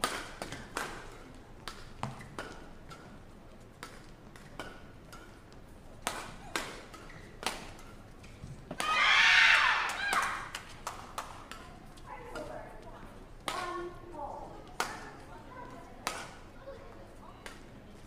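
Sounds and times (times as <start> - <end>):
rackets hitting shuttlecock: 0.0 - 3.2, 3.8 - 12.6, 13.4 - 13.8, 16.0 - 16.4.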